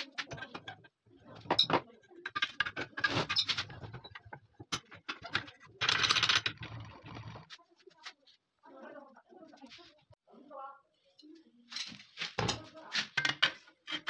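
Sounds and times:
metal scraping against vise: 0.0 - 7.6.

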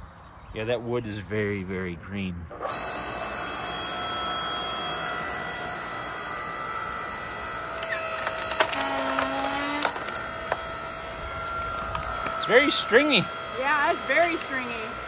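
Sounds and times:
log splitter whining: 2.5 - 15.0
wood cracking and splintering: 7.6 - 11.0.

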